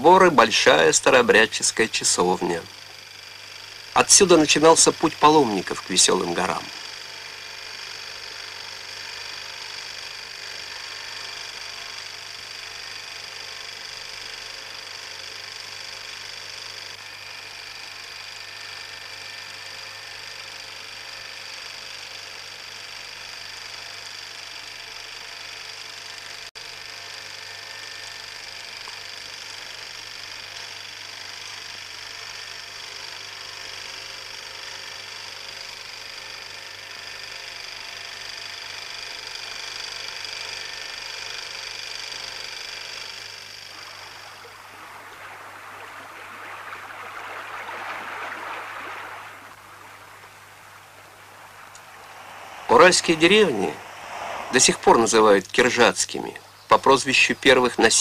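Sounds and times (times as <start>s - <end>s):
film projector whirring: 0.0s - 58.0s.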